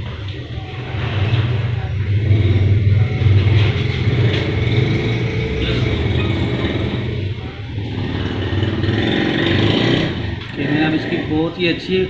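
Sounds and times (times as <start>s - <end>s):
low engine hum: 0.0s - 11.3s.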